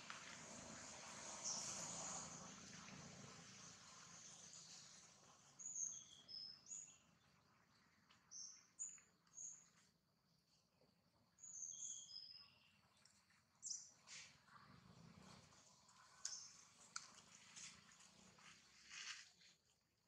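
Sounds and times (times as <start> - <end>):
faint background hiss: 0.0 - 7.6
bird chirping: 4.2 - 9.8, 11.4 - 14.1, 16.0 - 16.9.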